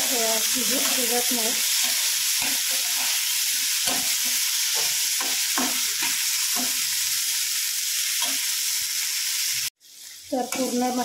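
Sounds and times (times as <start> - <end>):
vegetables sizzling in oil: 0.0 - 11.0
spatula scraping and knocking pan: 0.6 - 7.2.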